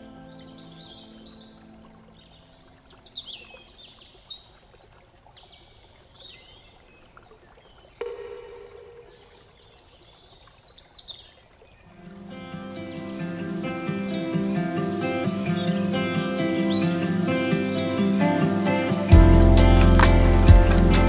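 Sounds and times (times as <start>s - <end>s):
songbirds singing: 0.0s - 21.0s
steady low tone: 13.0s - 21.0s.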